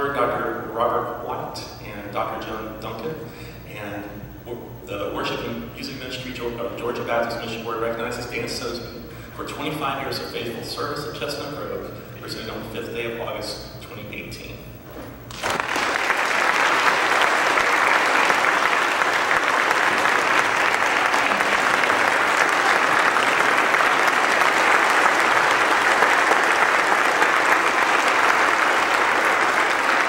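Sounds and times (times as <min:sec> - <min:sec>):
crowd clapping: 0:15.3 - 0:30.0.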